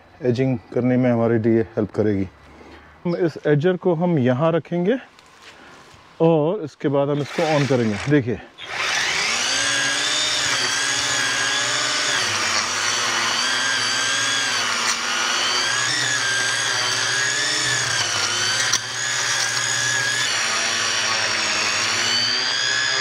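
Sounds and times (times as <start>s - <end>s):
lawn edger blade whining: 7.2s - 23.0s.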